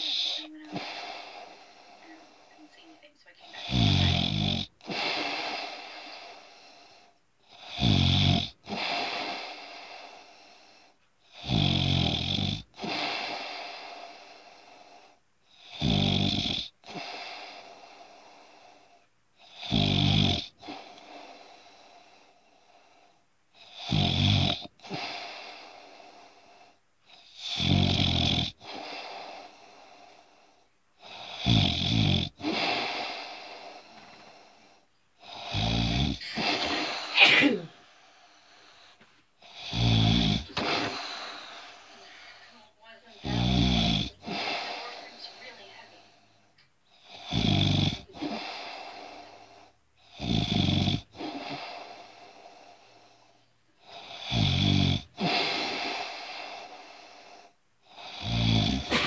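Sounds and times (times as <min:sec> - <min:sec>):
loud rattling snoring: 0:03.5 - 0:06.1, 0:07.5 - 0:09.6, 0:11.4 - 0:13.3, 0:15.6 - 0:17.2, 0:19.5 - 0:20.9, 0:23.6 - 0:25.3, 0:27.2 - 0:28.9, 0:31.0 - 0:33.4, 0:35.2 - 0:37.2, 0:39.4 - 0:41.7, 0:43.2 - 0:45.5, 0:47.0 - 0:52.2, 0:53.8 - 0:56.6, 0:57.9 - 0:59.0.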